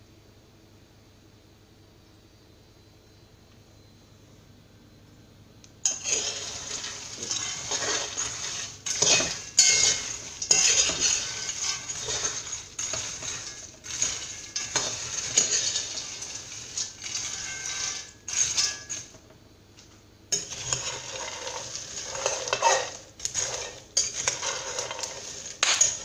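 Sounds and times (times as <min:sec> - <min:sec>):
beans stirred in a pot: 0:05.9 - 0:19.3, 0:20.3 - 0:26.0.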